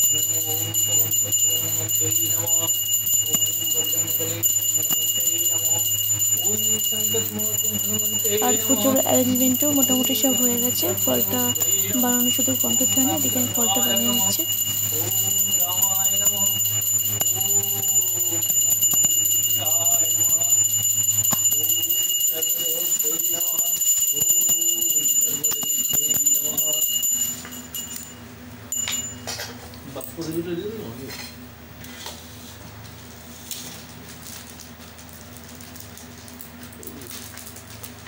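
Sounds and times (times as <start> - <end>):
bell ringing: 0.0 - 29.6
steady low hum: 0.0 - 38.0.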